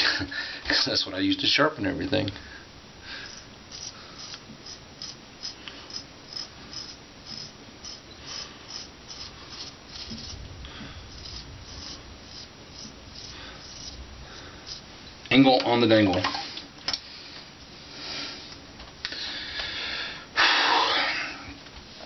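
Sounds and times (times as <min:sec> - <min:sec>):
razor scraping whiskers: 0:03.2 - 0:10.4, 0:11.1 - 0:14.9.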